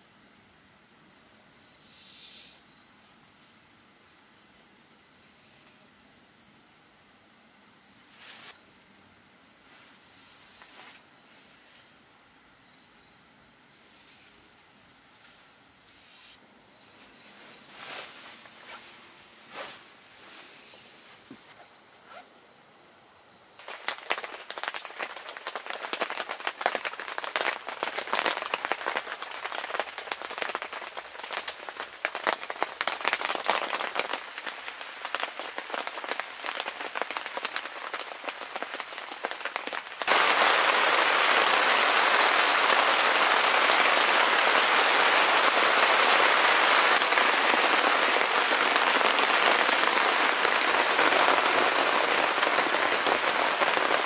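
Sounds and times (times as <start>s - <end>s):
heavy rain downpour: 23.6s - 54.0s
raindrops pattering: 23.6s - 54.0s.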